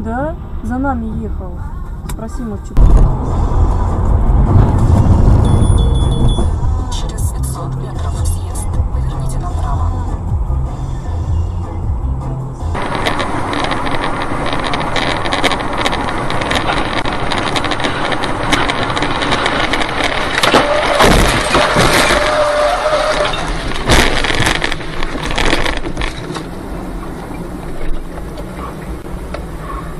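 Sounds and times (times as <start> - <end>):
car road and wind noise: 0.0 - 29.9
steady tone: 2.8 - 7.6
debris banging on windshield: 12.8 - 26.6.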